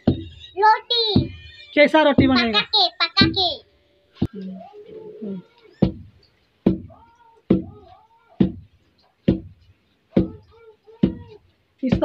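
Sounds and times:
high wavering cries: 0:00.0 - 0:02.1, 0:04.2 - 0:05.9
pestle pounding in wooden mortar: 0:02.2 - 0:02.6, 0:05.8 - 0:07.8, 0:08.4 - 0:12.0.

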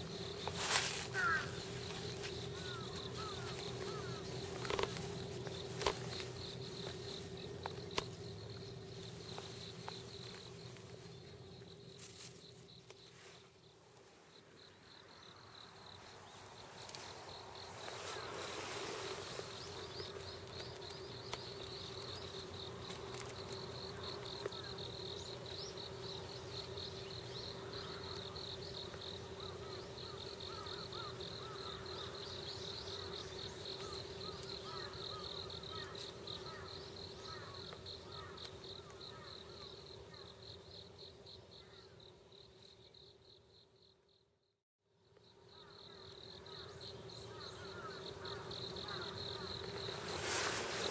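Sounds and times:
rustling: 0:00.0 - 0:08.3, 0:49.6 - 0:50.9
low steady hum: 0:00.0 - 0:13.0
insects chirping trill: 0:00.0 - 0:50.9.

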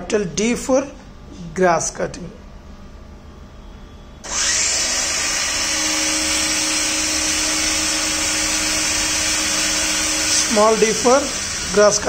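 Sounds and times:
steady hum: 0:00.0 - 0:12.0
grass-cutter motor whirring: 0:04.3 - 0:12.0.

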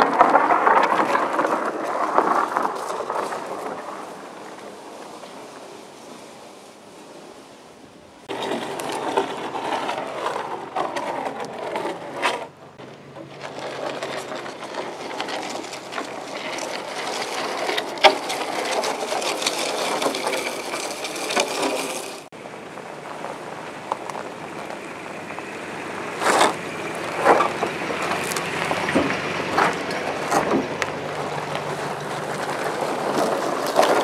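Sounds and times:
log scraping over gravel: 0:00.0 - 0:07.6, 0:08.3 - 0:34.0
truck engine running low: 0:08.3 - 0:20.0, 0:22.3 - 0:34.0.

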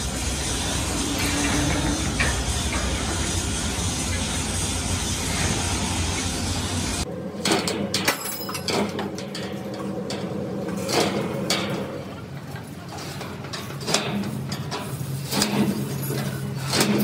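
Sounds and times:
low machine hum: 0:00.0 - 0:16.7
metal knocks and clanks on steel: 0:01.0 - 0:03.4, 0:07.4 - 0:17.0.

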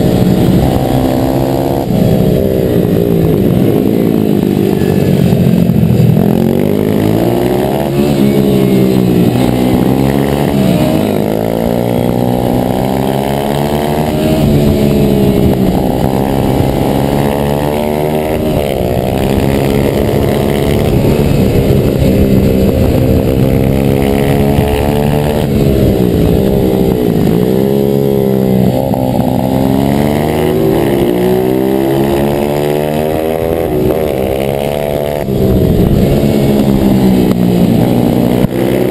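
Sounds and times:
motorbike engine revving: 0:00.0 - 0:38.9
wind rushing over microphone: 0:00.0 - 0:38.9.

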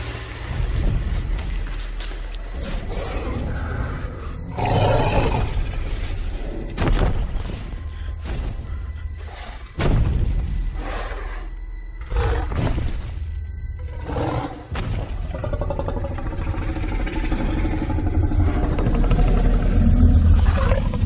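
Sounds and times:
deep rumbling film score: 0:00.0 - 0:21.0
low sustained creature growl: 0:13.8 - 0:21.0.

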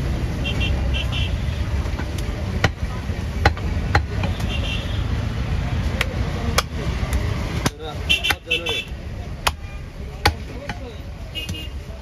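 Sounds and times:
cleaver chopping meat on wood: 0:01.8 - 0:04.4, 0:06.0 - 0:11.6.

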